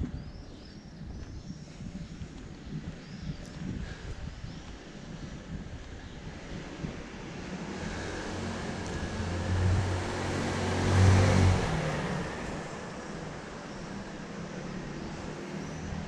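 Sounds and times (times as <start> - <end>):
vehicle passing by: 7.1 - 16.0.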